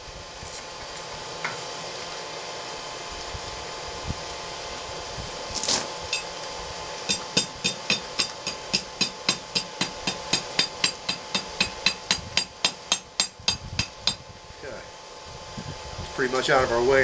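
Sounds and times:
hammer striking steel on anvil: 7.1s - 14.2s.

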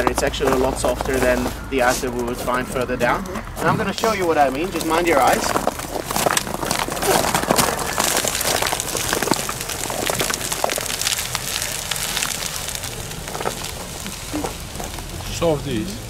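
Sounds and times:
ice axe chopping ice: 3.6s - 14.5s.

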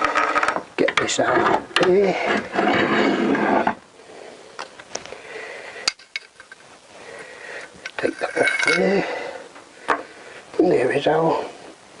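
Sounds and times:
metal tube scraping: 0.0s - 3.8s, 7.9s - 9.2s.

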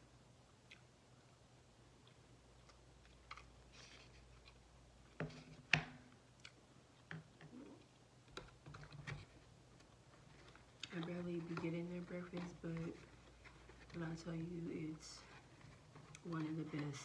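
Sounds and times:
chewing: 0.6s - 1.4s, 2.0s - 4.6s.

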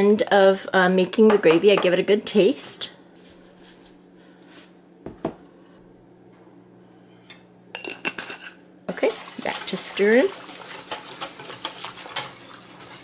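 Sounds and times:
faint steady hum: 0.0s - 12.9s
whisk clinking against metal pot: 9.2s - 13.0s.

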